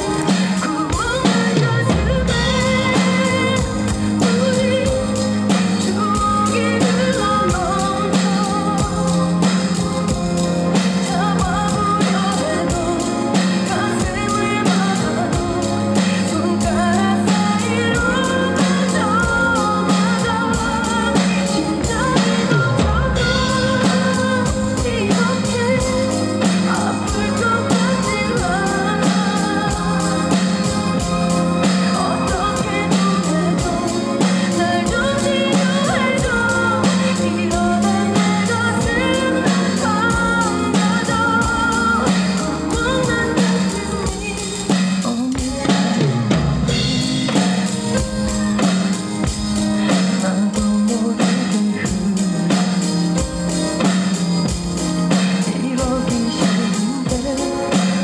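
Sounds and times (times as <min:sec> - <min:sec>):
drum kit with cymbals: 0:00.0 - 0:58.0
pop ballad backing track: 0:00.0 - 0:58.0.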